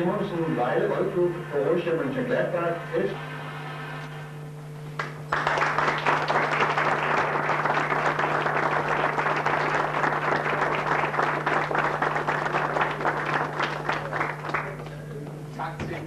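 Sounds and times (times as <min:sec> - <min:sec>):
steady low hum: 0:00.0 - 0:16.0
audience applauding: 0:05.0 - 0:15.1.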